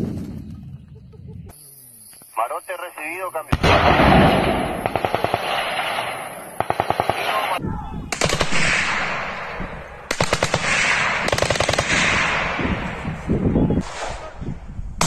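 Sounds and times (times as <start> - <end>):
automatic gunfire with echo: 3.5 - 13.0.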